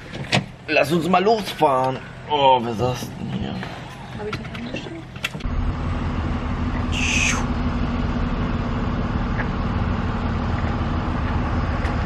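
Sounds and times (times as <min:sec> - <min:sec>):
traffic hum: 0:00.0 - 0:12.0
short high-pitched call: 0:06.9 - 0:07.5.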